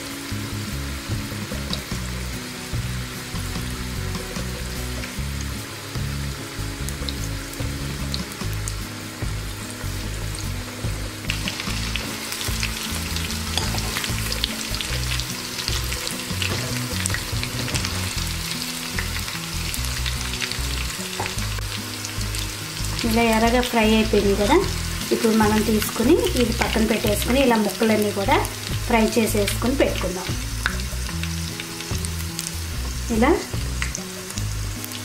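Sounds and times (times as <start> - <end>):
chicken sizzling in hot oil: 0.0 - 35.0
spatula turning food: 11.4 - 23.2.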